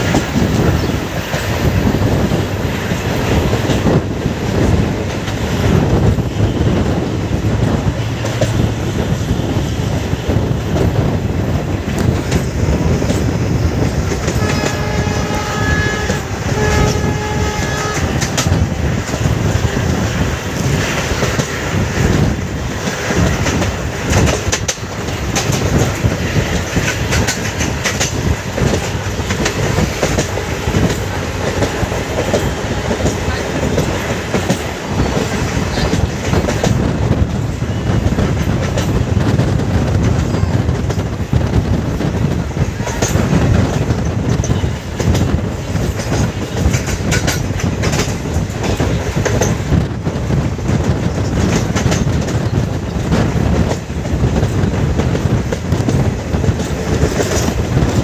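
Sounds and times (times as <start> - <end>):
train wheels clickety-clack: 0.0 - 58.0
locomotive horn: 14.3 - 18.4.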